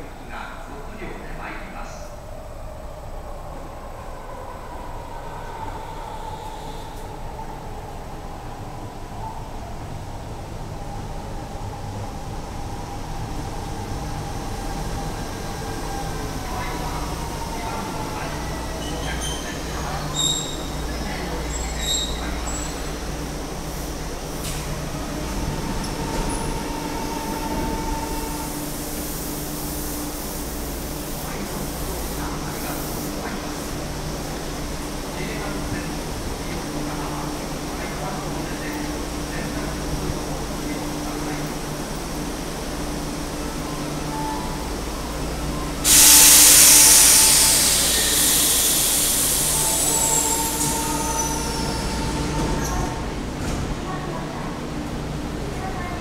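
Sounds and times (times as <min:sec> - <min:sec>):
subway train rumble and hum: 0:00.0 - 0:56.0
train doors opening: 0:14.6 - 0:30.5, 0:41.3 - 0:55.0
train compressed air hiss: 0:45.8 - 0:52.3.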